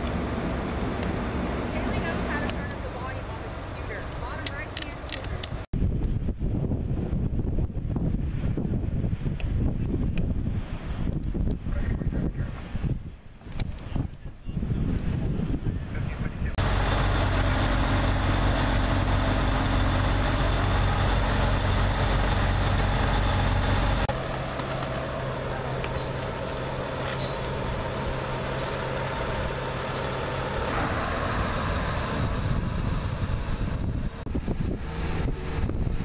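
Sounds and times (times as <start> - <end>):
diesel engines idling: 0.0 - 5.7, 16.4 - 36.0.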